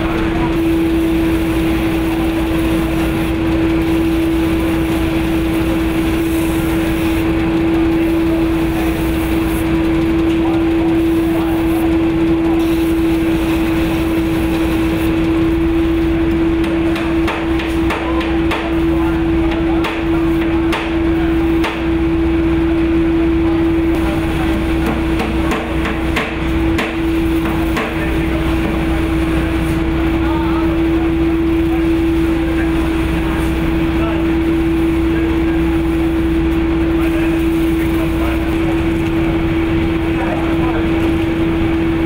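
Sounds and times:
drum sander humming: 0.0 - 42.0
sharp knocks: 24.8 - 28.0.

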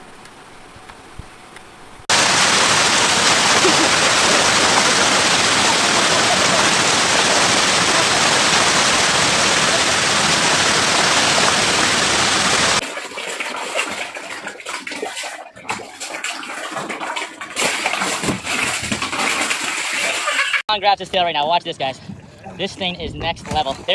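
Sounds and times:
river water rushing: 2.1 - 12.8
uneven splashing and knocks: 2.1 - 20.6.

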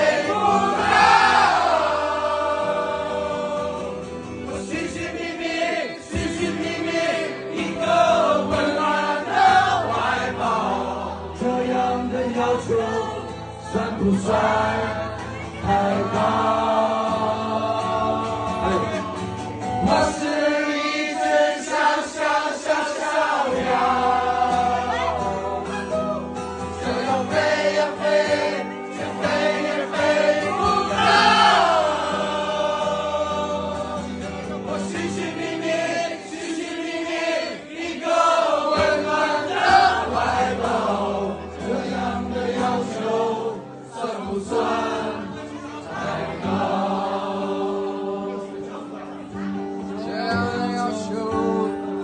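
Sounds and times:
acoustic guitar: 0.0 - 52.0
crowd singing along: 0.0 - 52.0
man singing into a microphone: 2.4 - 26.1, 49.8 - 52.0.

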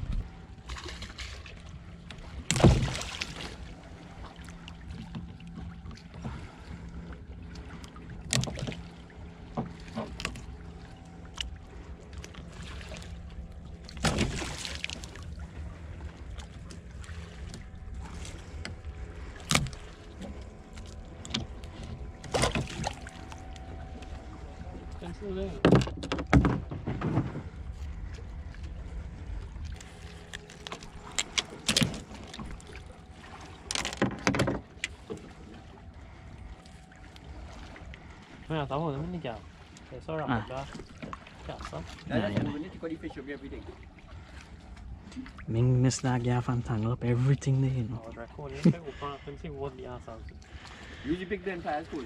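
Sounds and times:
steady low hum: 0.0 - 52.0
knocks against boat hull: 25.6 - 27.5.

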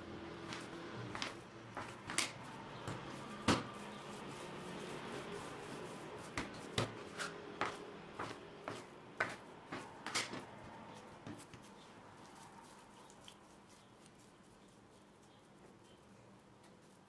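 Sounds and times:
scraper cutting dough on wood: 0.4 - 12.4.

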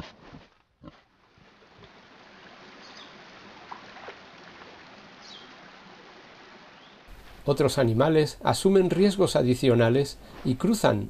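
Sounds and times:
rippling river water: 1.1 - 7.1.

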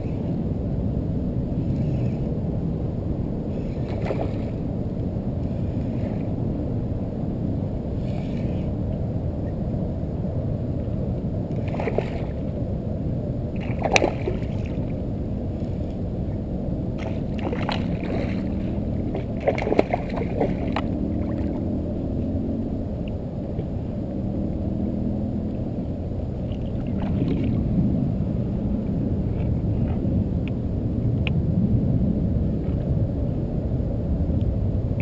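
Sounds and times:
low rumble: 0.0 - 35.0
fish splashing at water surface: 3.6 - 4.7, 13.6 - 15.0, 17.0 - 21.7.

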